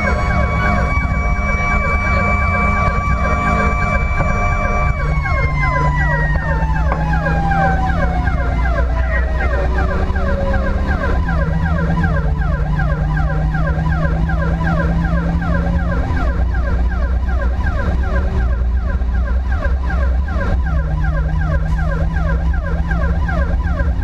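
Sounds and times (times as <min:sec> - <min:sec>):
siren in fast yelp: 0:00.0 - 0:24.0
siren tone sliding down in pitch: 0:00.0 - 0:24.0
steady engine drone: 0:00.0 - 0:24.0.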